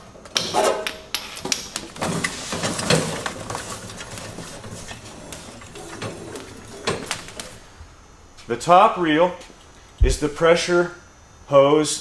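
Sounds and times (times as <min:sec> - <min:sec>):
hose reel rubbing and rattle: 0:01.9 - 0:07.7.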